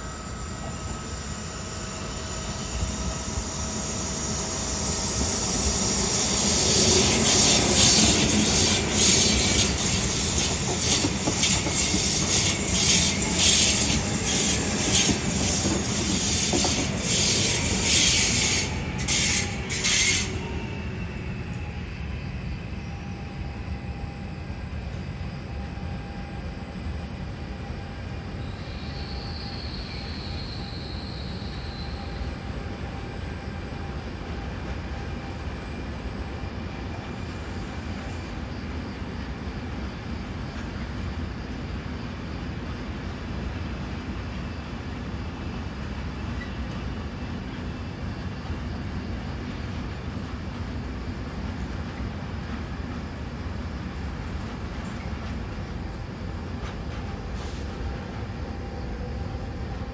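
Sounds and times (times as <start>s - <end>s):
train wheels clacking on rail joints: 7.4s - 20.4s.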